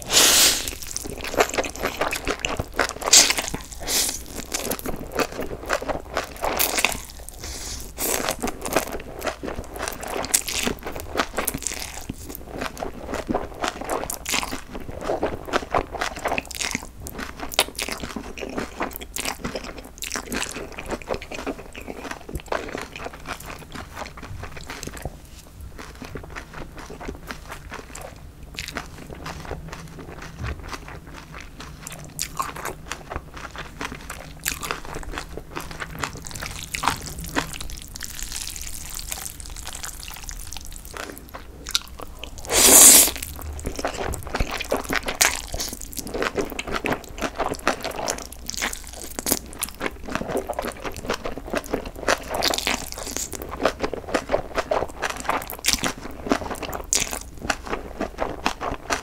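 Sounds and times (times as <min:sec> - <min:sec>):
noodle slurp: 0:00.0 - 0:01.0, 0:42.4 - 0:43.2
chewing noodles: 0:00.0 - 0:59.0
crunching bean sprouts: 0:00.0 - 0:59.0.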